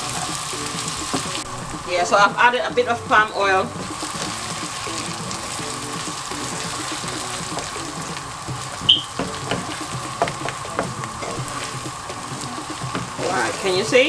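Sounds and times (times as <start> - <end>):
spatula knocking on pan: 0.0 - 2.6, 3.6 - 14.0
onions sizzling in a frying pan: 0.0 - 14.0
spatula stirring and scraping: 2.7 - 14.0
high-pitched beep: 8.9 - 9.2.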